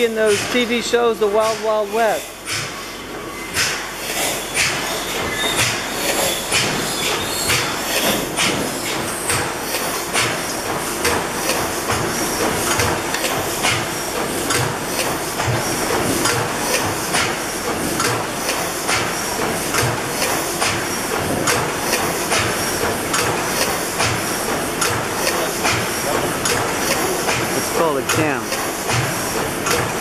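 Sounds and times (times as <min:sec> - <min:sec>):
gas engine running: 0:04.0 - 0:30.0
valve gear clicking: 0:11.0 - 0:17.4, 0:18.0 - 0:30.0.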